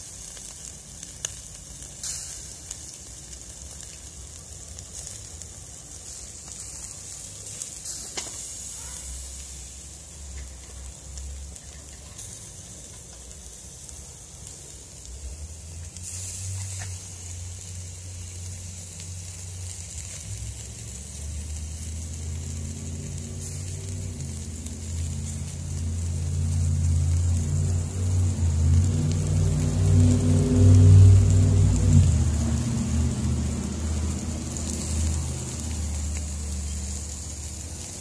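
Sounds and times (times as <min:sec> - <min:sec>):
fish sizzling on charcoal grill: 0:00.0 - 0:38.0
low rumble: 0:22.2 - 0:36.6.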